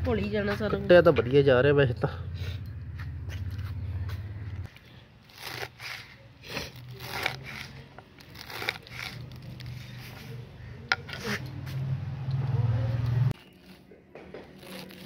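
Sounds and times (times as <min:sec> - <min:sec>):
knife cutting leafy greens: 0:04.8 - 0:12.0, 0:13.4 - 0:15.0.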